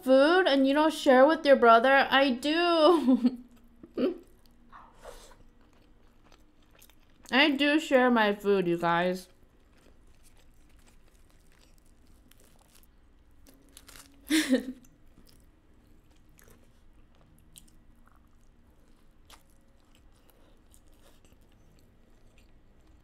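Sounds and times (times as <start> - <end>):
chewing food: 3.4 - 7.6, 9.1 - 23.0.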